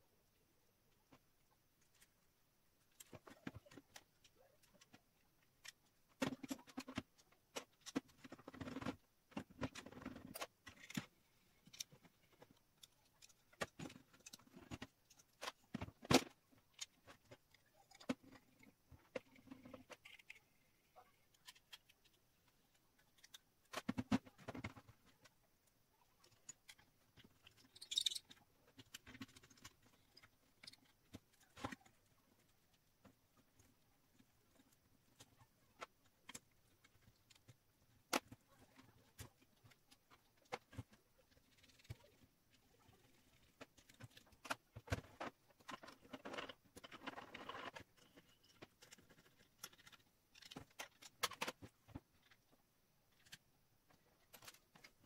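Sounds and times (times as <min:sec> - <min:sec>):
small metal parts clicking: 0:27.4 - 0:31.4.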